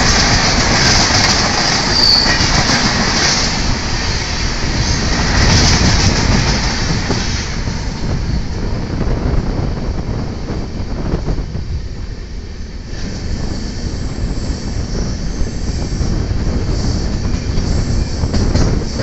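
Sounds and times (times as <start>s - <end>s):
passing train on next track: 0.0s - 19.0s
rushing air: 0.0s - 19.0s
train wheels rumbling on rails: 0.0s - 19.0s.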